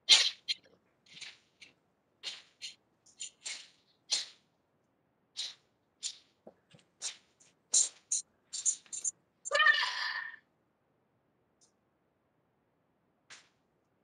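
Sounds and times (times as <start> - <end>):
uniform swishing and snapping: 0.1 - 4.5, 5.4 - 9.1.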